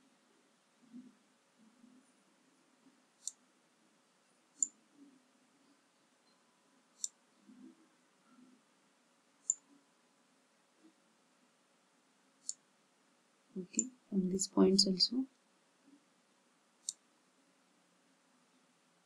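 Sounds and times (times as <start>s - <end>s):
faint low background noise: 0.0s - 19.0s
computer mouse clicks: 3.2s - 3.4s, 4.6s - 4.8s, 7.0s - 7.2s, 9.4s - 9.7s, 12.4s - 12.6s, 16.8s - 17.0s.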